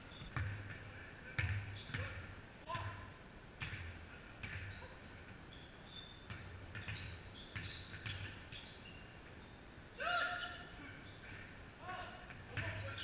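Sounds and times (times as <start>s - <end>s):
sneaker squeaks: 0.0s - 0.6s, 1.4s - 2.2s, 4.4s - 9.6s, 10.2s - 11.6s, 12.5s - 13.0s
basketball bouncing on gym floor: 0.1s - 3.0s, 3.6s - 5.0s, 6.0s - 8.7s, 12.3s - 13.0s.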